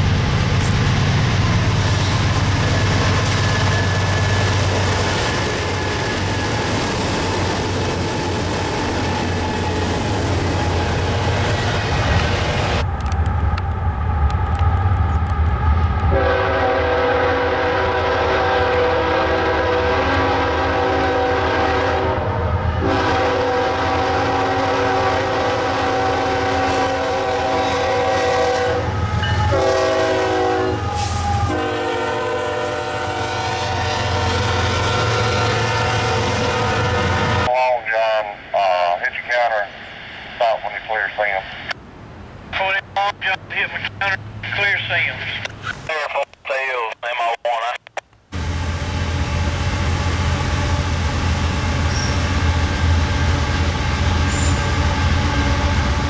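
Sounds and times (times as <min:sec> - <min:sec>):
train wheels rumbling on rails: 0:00.0 - 0:37.5, 0:48.3 - 0:56.0
diesel locomotive engines droning: 0:00.0 - 0:56.0
locomotive air horn blasts: 0:16.1 - 0:37.5.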